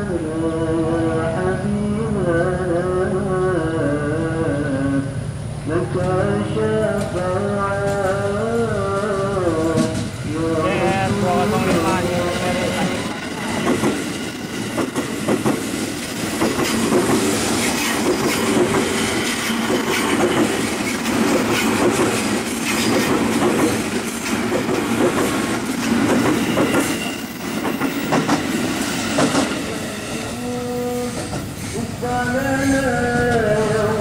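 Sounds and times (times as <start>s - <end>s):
train wheels clattering over rail joints: 6.9s - 10.5s, 11.4s - 29.8s.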